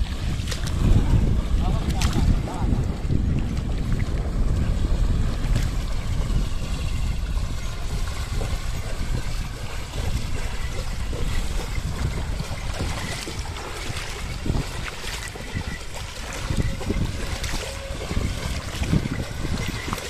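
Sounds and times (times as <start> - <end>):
muddy water splashing: 0.0 - 20.0
wind rumbling on microphone: 0.0 - 20.0.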